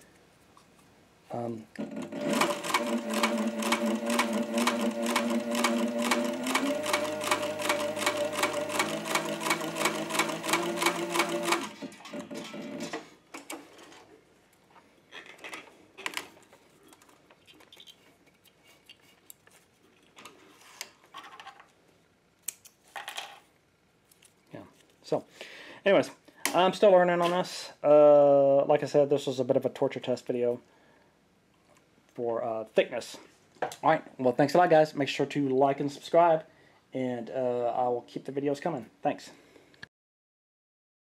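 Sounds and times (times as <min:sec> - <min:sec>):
motor hum: 0:01.8 - 0:12.8
sewing machine stitching leather: 0:01.8 - 0:13.0.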